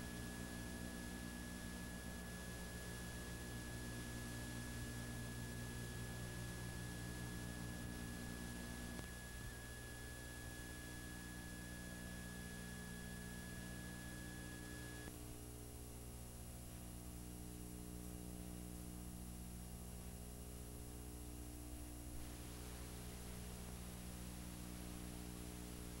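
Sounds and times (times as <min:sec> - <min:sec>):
thin high whine: 0:00.0 - 0:15.1
videotape hum and hiss: 0:00.0 - 0:26.0.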